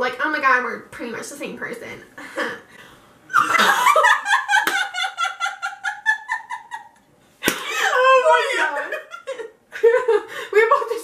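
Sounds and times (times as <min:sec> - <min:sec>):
young women laughing: 0:03.3 - 0:10.7.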